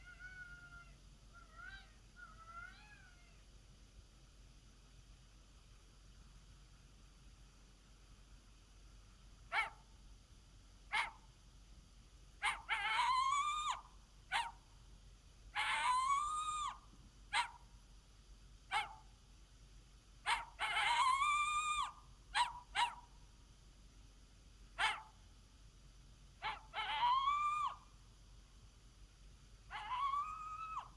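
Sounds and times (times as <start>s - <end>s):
coyote call barks and yips: 0.0s - 3.4s, 9.5s - 9.9s, 10.9s - 11.3s, 12.4s - 14.7s, 15.5s - 17.7s, 18.7s - 19.1s, 20.2s - 23.2s, 24.8s - 25.2s, 26.4s - 27.9s, 29.6s - 30.9s
coyote call howls: 0.0s - 3.5s, 12.4s - 14.6s, 15.5s - 17.6s, 20.2s - 23.0s, 26.4s - 27.9s, 29.7s - 30.9s.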